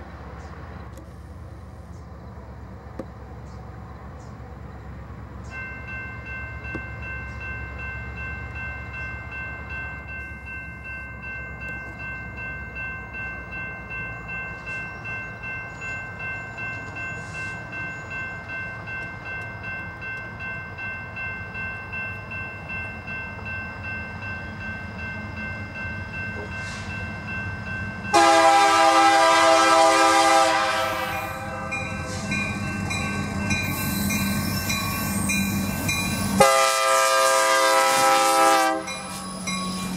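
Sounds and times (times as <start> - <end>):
diesel locomotive engine rumble: 0.0 - 39.9
crossing bell ringing: 5.2 - 39.9
locomotive air horn: 28.1 - 32.3, 36.4 - 39.0.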